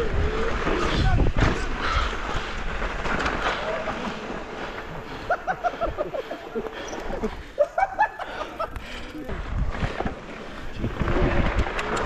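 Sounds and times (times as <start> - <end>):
bike tyre and frame rattle: 0.0 - 12.0.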